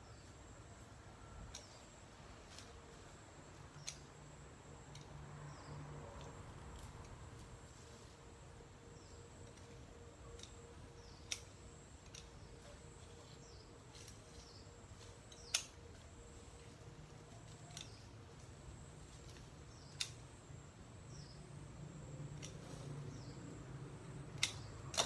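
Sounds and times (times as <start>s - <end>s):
scissors snipping plant stems: 1.4s - 7.8s, 9.0s - 20.4s, 22.3s - 23.4s, 24.2s - 25.0s.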